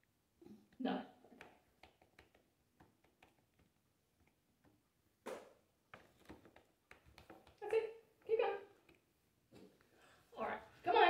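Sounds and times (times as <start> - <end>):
small clicks and taps: 0.7 - 4.8, 5.9 - 9.9.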